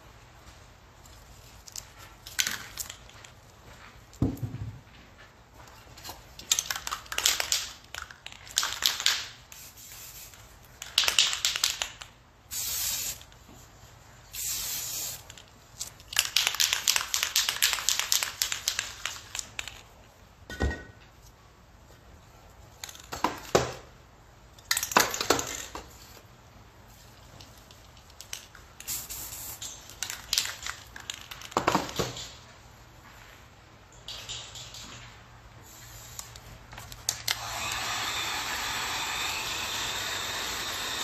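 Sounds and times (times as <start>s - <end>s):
spray paint can hissing: 8.5s - 13.4s, 14.3s - 19.4s, 28.8s - 30.7s, 35.6s - 36.5s.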